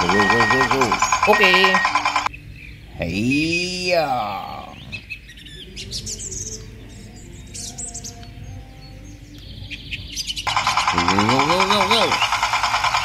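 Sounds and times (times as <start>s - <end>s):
loud rapid rhythmic buzz: 0.0s - 2.3s, 10.5s - 13.0s
small birds chirping: 0.0s - 13.0s.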